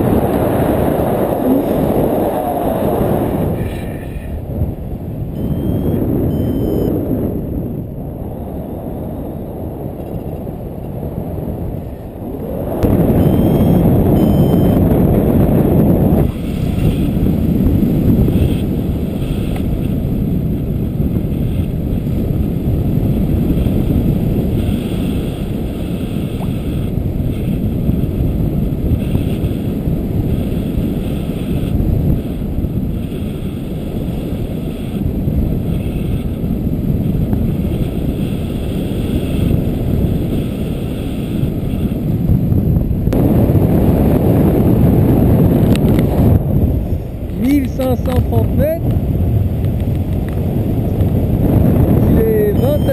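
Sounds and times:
wind noise on microphone: 0.0 - 52.9
short high beeps: 5.4 - 7.0, 13.0 - 14.8, 52.6 - 52.9.

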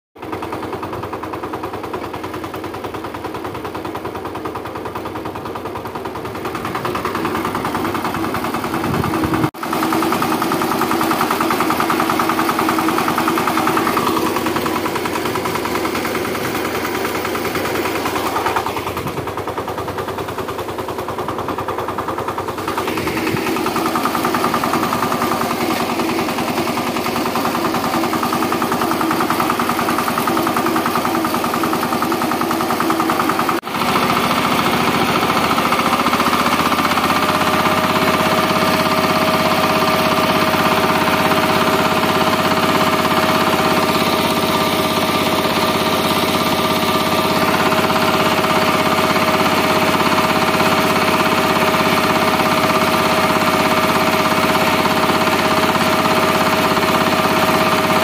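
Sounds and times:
tiller diesel engine running: 0.2 - 58.0.

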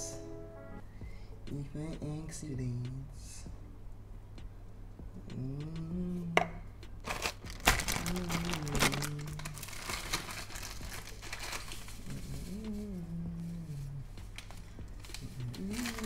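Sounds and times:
plastic packet crinkling: 7.0 - 12.4, 14.4 - 16.0.

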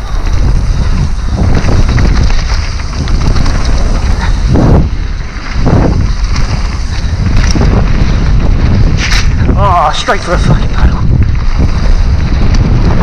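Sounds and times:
bike rattling over dirt trail: 0.0 - 13.0
wind buffeting microphone: 0.0 - 13.0.

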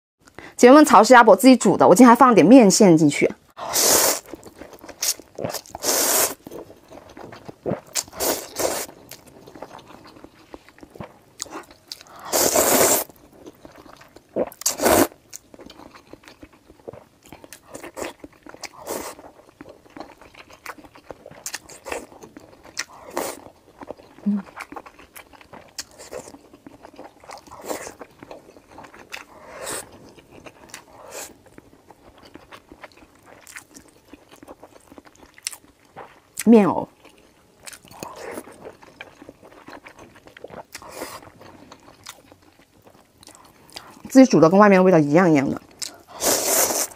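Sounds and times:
slurping noodles: 3.6 - 4.3, 5.0 - 6.4, 8.0 - 9.0, 12.2 - 13.1, 14.6 - 15.2, 46.0 - 46.9
chewing with soft crunching: 4.2 - 12.4, 13.0 - 44.1, 45.6 - 46.9.

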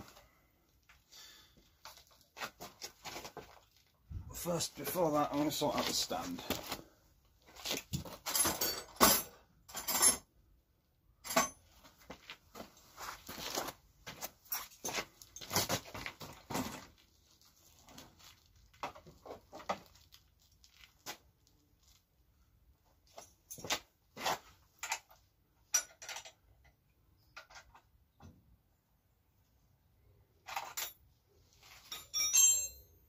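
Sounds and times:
hand tools clinking and scraping: 4.4 - 6.8, 7.5 - 10.3, 11.2 - 17.0, 23.1 - 27.8, 30.4 - 33.0.

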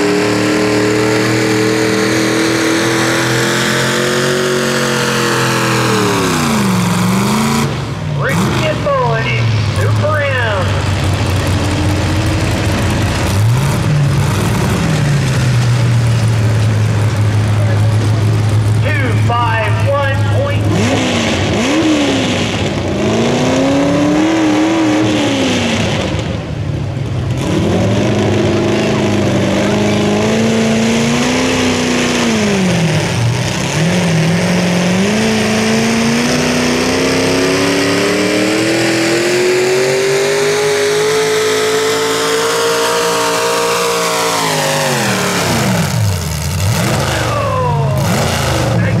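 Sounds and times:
engine revving under load: 0.0 - 49.0.

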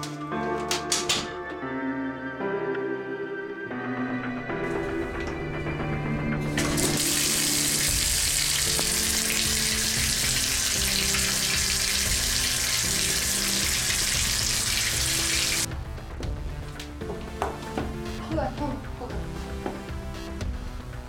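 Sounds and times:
quiet background music: 0.0 - 21.0
water running into bathtub: 6.5 - 15.7.

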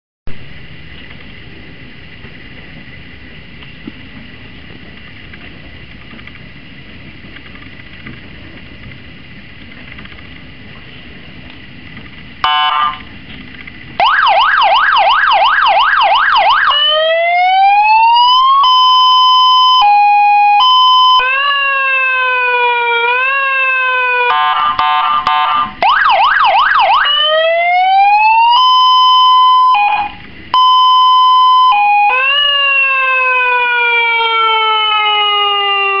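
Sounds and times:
electronic siren changing tones: 12.4 - 13.1, 14.0 - 36.0
harsh horn blast: 12.4 - 13.1, 24.3 - 25.8.

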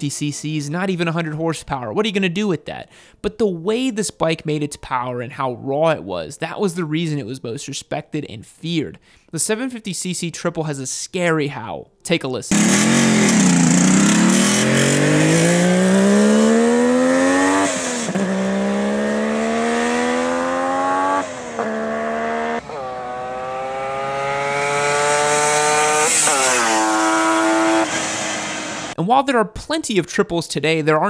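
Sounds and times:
motorcycle engine accelerating: 12.5 - 29.0.

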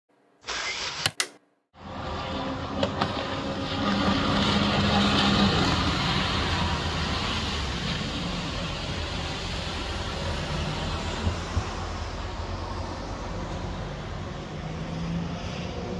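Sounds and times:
jet ski engines droning: 1.8 - 10.6.

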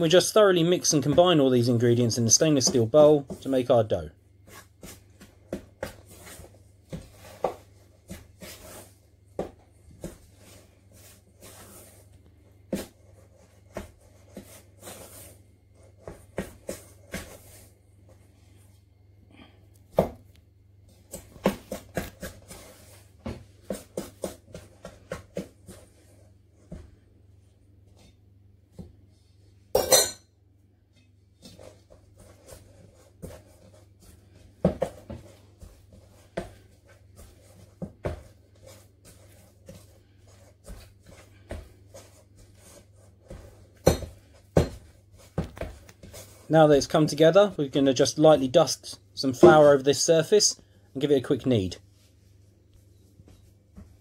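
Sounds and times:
ringing metal bowl clank: 29.8 - 30.2.

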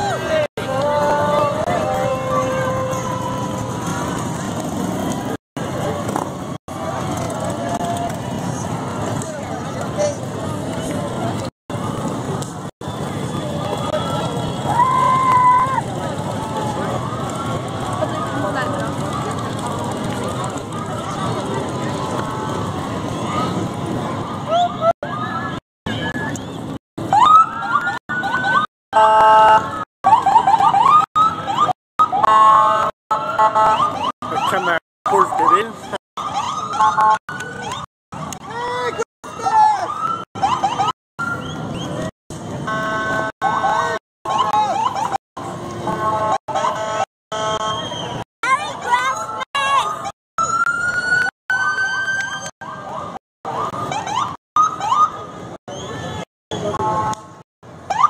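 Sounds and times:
electronic siren chirps and yelps: 27.0 - 37.9, 39.2 - 42.1, 43.4 - 45.2, 49.2 - 56.2
horn blasts: 28.9 - 29.8, 32.1 - 34.0, 42.6 - 44.0, 45.8 - 48.2.

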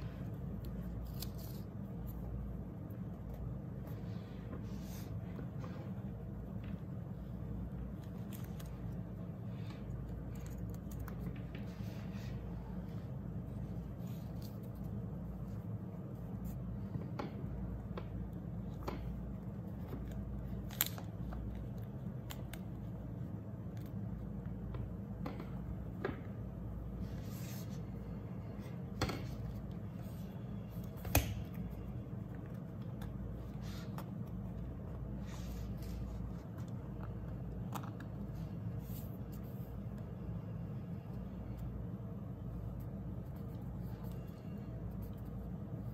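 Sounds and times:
steady low hum: 0.0 - 45.9
paper and tape rustling: 0.5 - 2.4.

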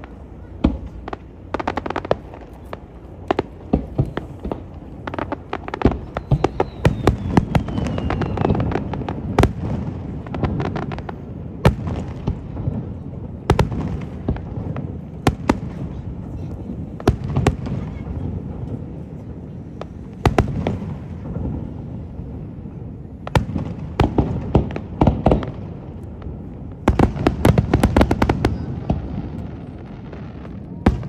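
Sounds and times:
fireworks crackling bangs: 0.0 - 31.0
faint falling whistle: 6.0 - 8.6.

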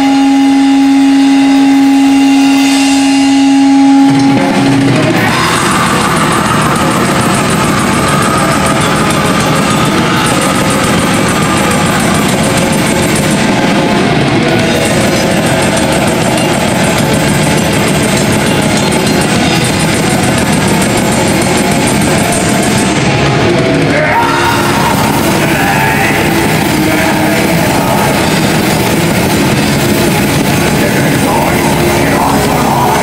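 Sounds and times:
metal band playing live: 0.0 - 33.0.

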